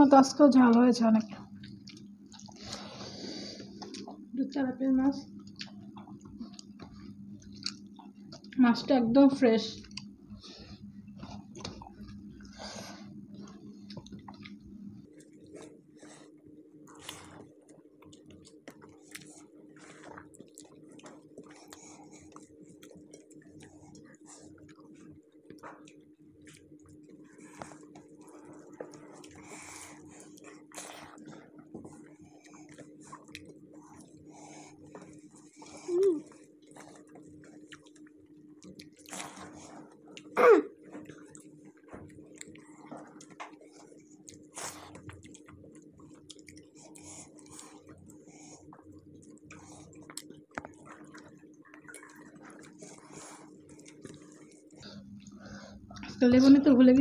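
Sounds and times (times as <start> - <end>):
wet chewing: 0.7 - 4.2, 5.3 - 8.6, 9.7 - 56.2
eating rice by hand: 1.3 - 4.3, 5.2 - 8.6, 9.8 - 56.2
person clearing throat: 40.4 - 40.8.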